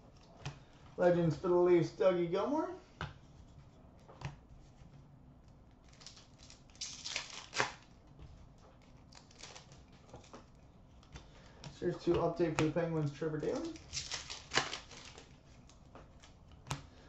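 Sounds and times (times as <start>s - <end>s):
plastic wrapper crinkling and tearing: 5.8s - 8.0s, 8.7s - 10.6s, 12.6s - 16.4s.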